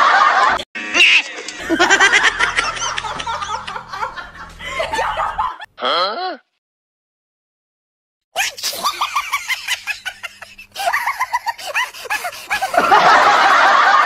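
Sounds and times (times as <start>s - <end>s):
high-pitched giggling laughter: 0.4s - 5.7s, 8.4s - 14.0s.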